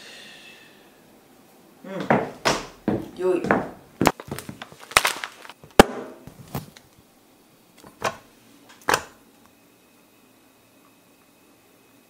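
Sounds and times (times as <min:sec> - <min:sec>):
paper bag handled: 0:04.2 - 0:05.6.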